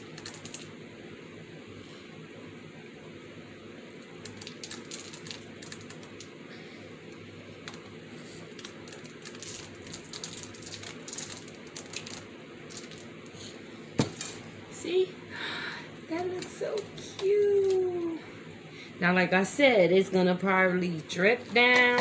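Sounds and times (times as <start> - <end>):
sprinkles ticking on paper: 0.0 - 0.7, 4.2 - 6.4, 8.5 - 13.1
steady low hum: 0.0 - 22.0.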